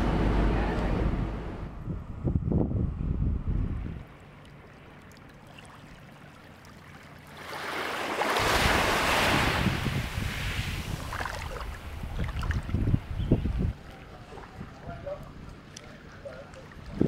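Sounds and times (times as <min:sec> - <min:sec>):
wind buffeting microphone: 0:00.0 - 0:04.1, 0:08.4 - 0:15.7, 0:16.8 - 0:17.0
sea wave surging: 0:07.3 - 0:12.5.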